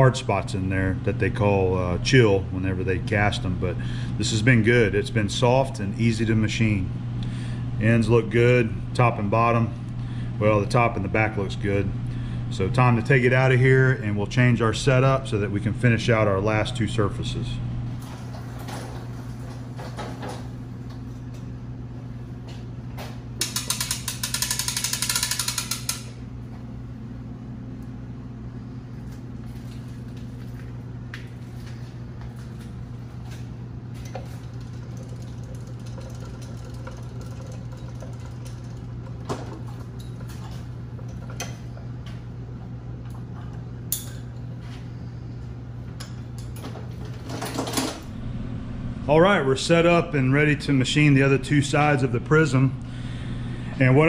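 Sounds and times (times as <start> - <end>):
steady low hum: 0.0 - 54.0
rapid ratcheting clatter: 23.4 - 26.1, 34.4 - 38.9.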